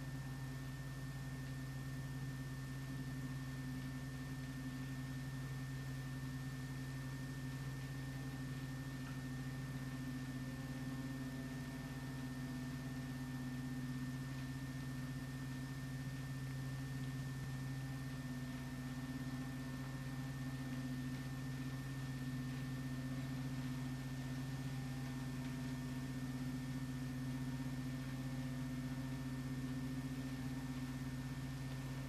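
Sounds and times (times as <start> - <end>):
faint high-pitched whine: 0.0 - 32.0
steady low hum: 0.0 - 32.0.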